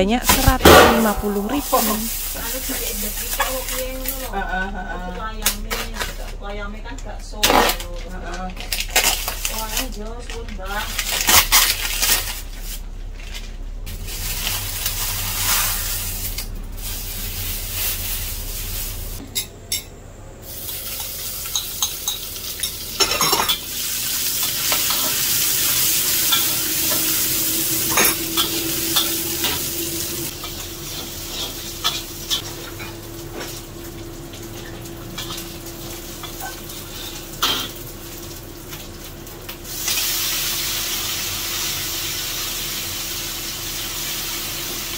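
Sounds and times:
garlic sizzling in oil: 0:00.2 - 0:04.4, 0:13.9 - 0:19.2, 0:20.4 - 0:44.9
plastic bag rustling: 0:00.4 - 0:04.4, 0:07.7 - 0:19.2
metal spatula scraping pan: 0:24.4 - 0:32.4.

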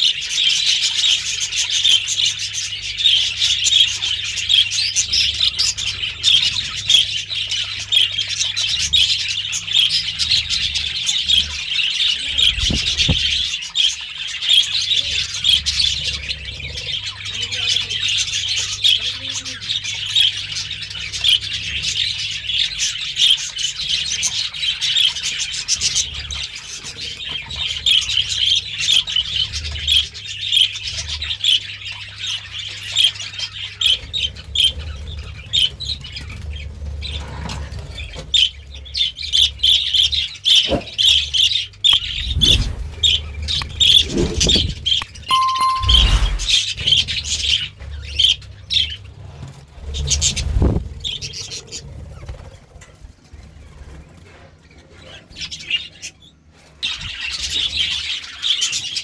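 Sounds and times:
budgerigars chirping and chattering: 0:00.0 - 0:59.0
low thump: 0:12.5 - 0:13.4.

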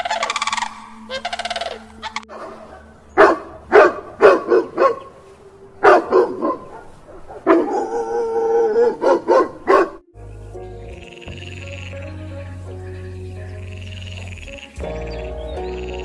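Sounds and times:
dog barking: 0:02.2 - 0:05.2, 0:05.8 - 0:10.0.

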